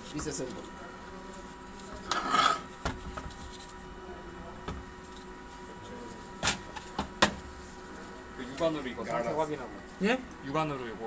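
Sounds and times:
metal scraping rub: 2.0 - 2.7.

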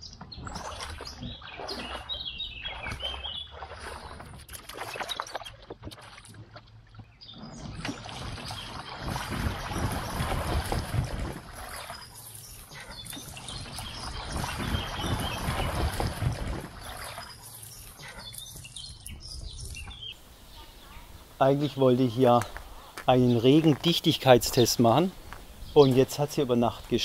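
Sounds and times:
bicycle wheels splashing through water: 7.8 - 18.3.

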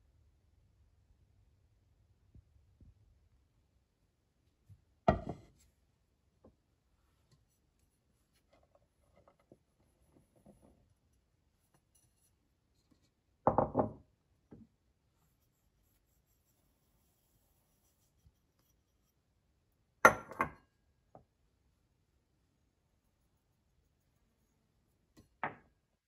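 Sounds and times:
ceramic pot knocking on wooden table: 5.1 - 5.5, 13.5 - 14.0, 20.1 - 20.6.

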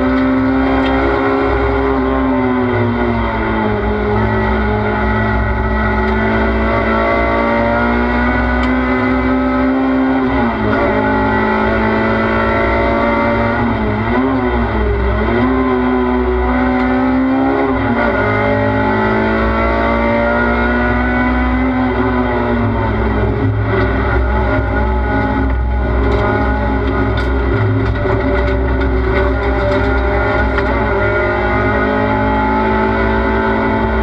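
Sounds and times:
race car engine at high revs: 0.0 - 34.0
road noise: 0.0 - 34.0.

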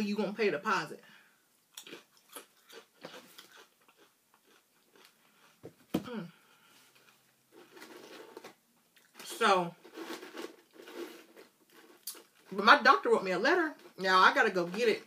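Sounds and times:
chewing crunchy chips: 1.7 - 5.6, 9.9 - 12.5.

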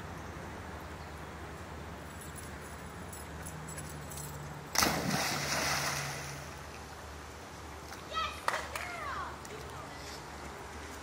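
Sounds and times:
dog splashing into pool: 4.7 - 6.5
water sloshing: 4.7 - 7.0.

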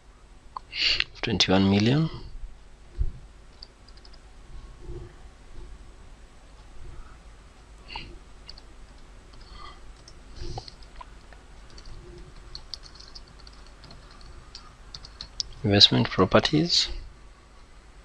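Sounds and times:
faint keyboard keystrokes: 3.6 - 4.2, 8.0 - 16.1.

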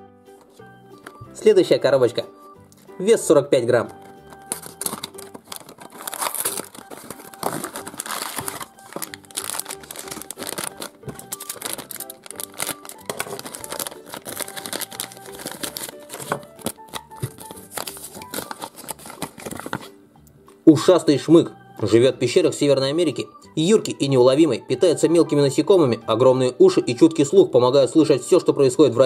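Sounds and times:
light background music: 0.0 - 29.0
cardboard box being opened: 3.9 - 19.9
plastic pouch crinkling and tearing: 4.0 - 19.9.

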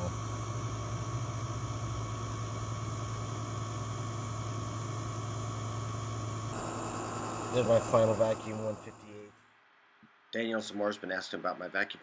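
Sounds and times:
vacuum pump humming: 0.0 - 9.2.

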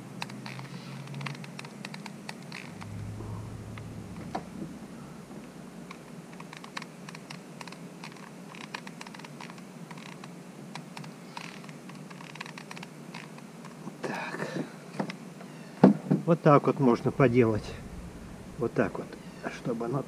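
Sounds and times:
faint steady hum: 2.6 - 6.7, 16.8 - 20.0
glue gun clicks and scrapes: 6.6 - 13.8.

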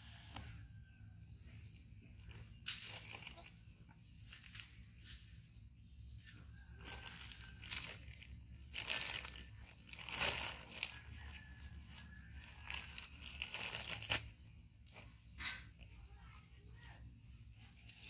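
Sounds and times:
diaper packaging crinkling: 2.2 - 3.6, 6.6 - 15.0.

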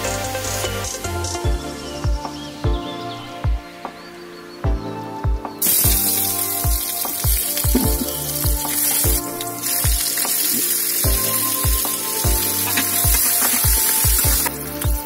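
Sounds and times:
background music with bass drum: 0.0 - 15.0
vegetables sizzling in hot oil: 5.6 - 14.6.

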